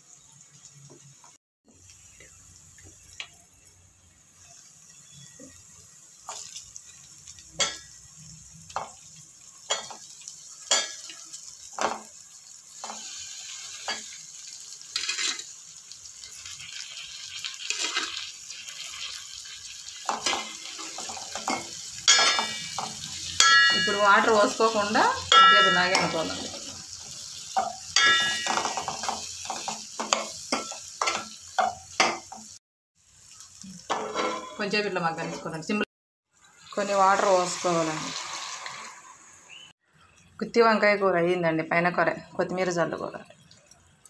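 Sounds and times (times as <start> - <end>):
light sizzle: 0.0 - 44.0
spoon scraping in pot: 14.9 - 15.5, 33.9 - 34.6
spoon clinking on pot: 20.1 - 24.0, 27.6 - 32.3.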